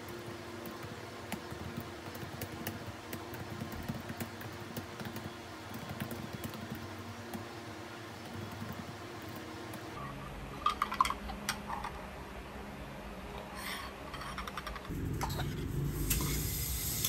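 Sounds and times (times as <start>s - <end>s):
laptop keyboard typing: 0.0s - 7.4s
steady low hum: 6.6s - 17.0s.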